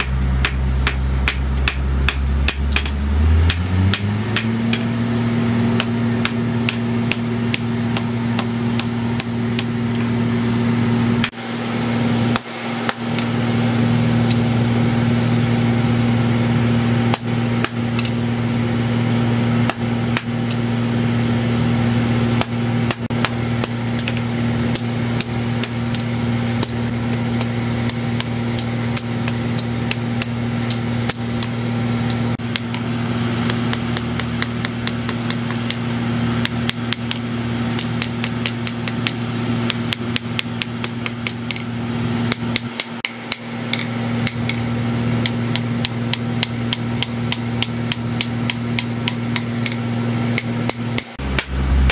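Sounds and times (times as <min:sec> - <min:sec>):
hammer striking steel blade: 0:00.0 - 0:05.0, 0:05.7 - 0:10.5, 0:22.4 - 0:35.8, 0:36.4 - 0:41.7, 0:42.3 - 0:51.9
low machine hum: 0:00.0 - 0:51.9.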